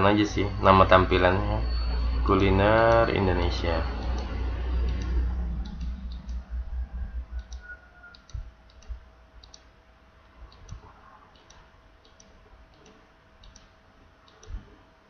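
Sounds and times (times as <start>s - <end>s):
low rumble: 0.0s - 9.4s
computer mouse clicking: 7.4s - 9.7s, 10.5s - 14.7s.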